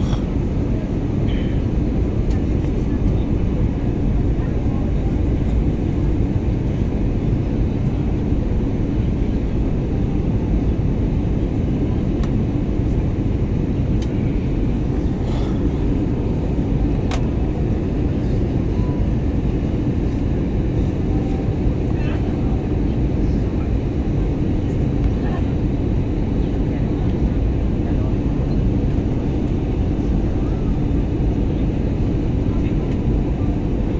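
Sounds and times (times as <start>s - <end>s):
airliner cabin engine rumble: 0.0s - 33.9s.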